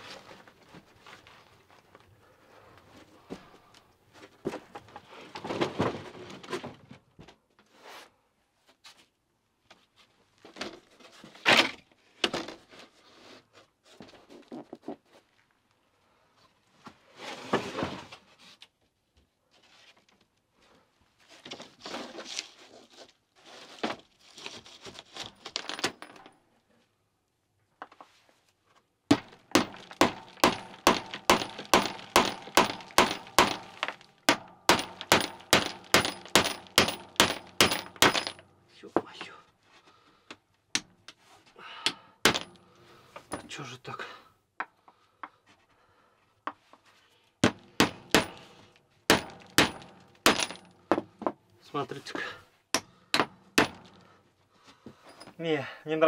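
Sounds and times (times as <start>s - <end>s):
wood and tools clattering: 2.9s - 7.1s, 21.3s - 26.4s, 29.1s - 40.0s, 47.4s - 51.5s.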